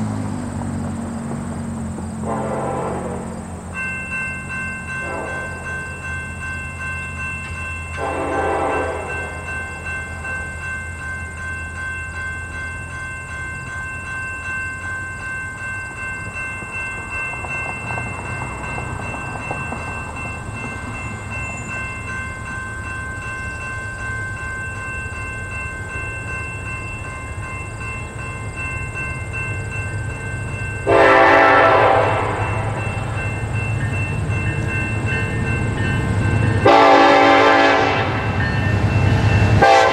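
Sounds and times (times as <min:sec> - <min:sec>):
low rumble of train: 0:00.0 - 0:39.9
locomotive horn blasts: 0:02.2 - 0:03.4, 0:04.9 - 0:05.8, 0:08.0 - 0:09.5, 0:30.8 - 0:32.8, 0:36.6 - 0:38.4, 0:39.6 - 0:39.9.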